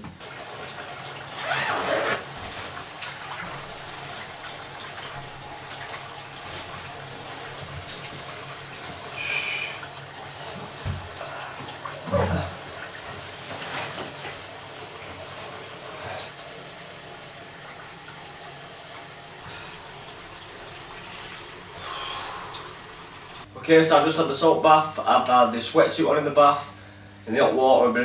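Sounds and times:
rush of bath water: 0:00.0 - 0:23.5
splash in bathtub: 0:00.2 - 0:15.4.

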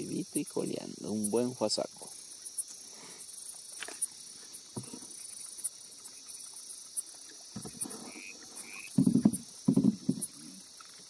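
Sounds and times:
crickets chirring: 0:00.0 - 0:11.0
short insect chirps: 0:00.0 - 0:11.0
faint knocks: 0:07.6 - 0:08.2, 0:08.9 - 0:10.5.

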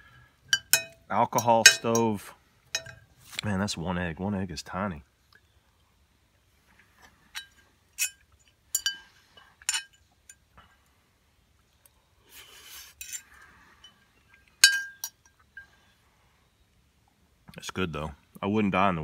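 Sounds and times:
metal fork clinking on skillet: 0:07.4 - 0:09.0, 0:14.6 - 0:15.4.

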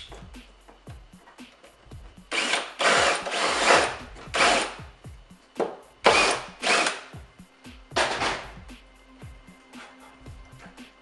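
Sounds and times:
cordless drill bursts: 0:02.3 - 0:04.8, 0:06.1 - 0:07.0.

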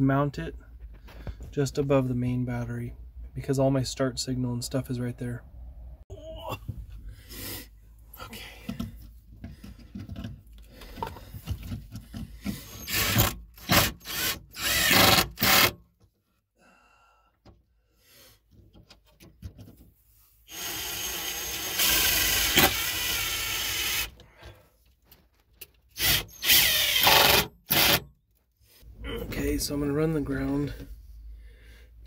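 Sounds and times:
cordless drill driving screws: 0:12.5 - 0:15.8, 0:20.5 - 0:24.1, 0:26.0 - 0:28.0.

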